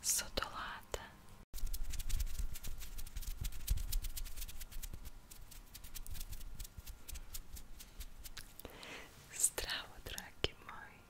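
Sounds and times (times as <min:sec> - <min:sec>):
fingers fluttering and skin rubbing: 0:01.6 - 0:08.7.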